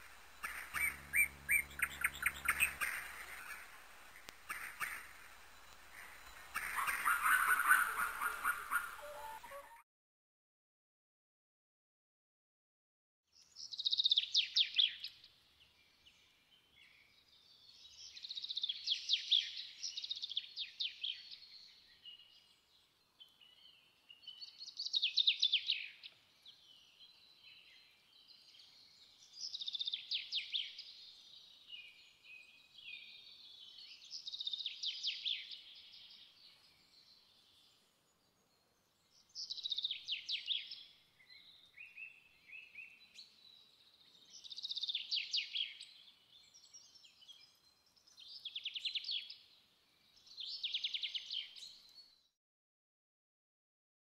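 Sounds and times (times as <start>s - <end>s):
birds chirping and trilling: 0.0s - 9.8s.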